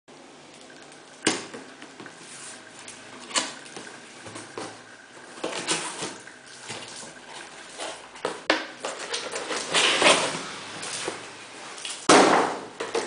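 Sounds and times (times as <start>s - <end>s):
cardboard rustling and scraping: 7.4s - 11.2s
sharp knocks on cardboard box: 12.1s - 12.7s.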